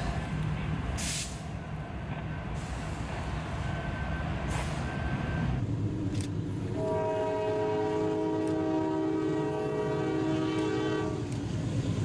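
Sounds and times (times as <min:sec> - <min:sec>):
air hiss: 0:01.0 - 0:01.6.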